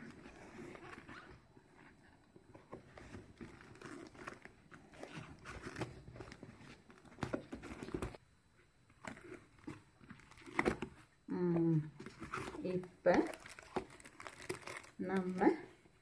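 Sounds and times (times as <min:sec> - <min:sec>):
cardboard scraping and rustling: 0:00.0 - 0:08.2.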